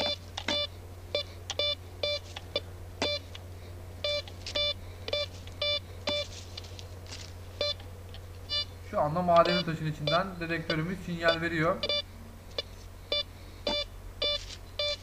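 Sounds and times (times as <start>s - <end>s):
metal detector short beeps: 4.1s - 6.3s.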